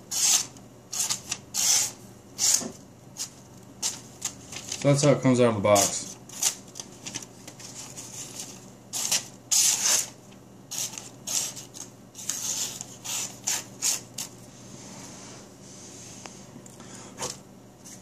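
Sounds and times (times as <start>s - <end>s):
knife slicing newspaper: 9.0s - 14.3s.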